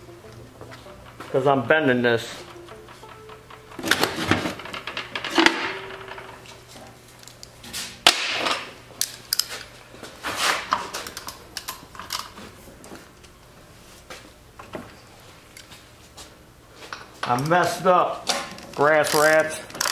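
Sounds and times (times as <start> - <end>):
metal clicks and clanks: 0.2 - 6.6, 16.9 - 19.9.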